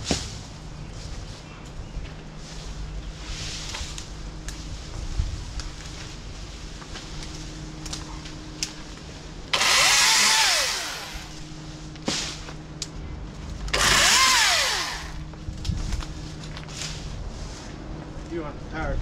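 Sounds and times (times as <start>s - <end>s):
chainsaw cutting branches: 9.5s - 11.4s, 13.7s - 15.3s.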